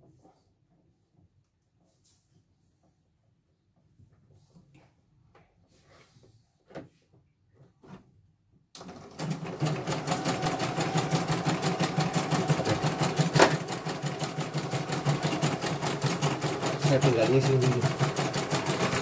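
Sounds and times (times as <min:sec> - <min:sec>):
embroidery machine stitching: 0:08.8 - 0:19.0.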